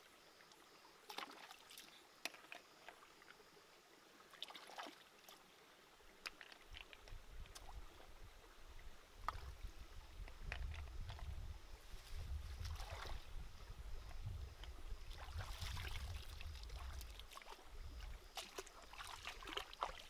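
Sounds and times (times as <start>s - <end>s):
stream trickling: 0.0s - 20.0s
small splashes and stone clicks: 0.5s - 3.4s, 6.2s - 7.8s, 10.2s - 11.4s, 14.2s - 20.0s.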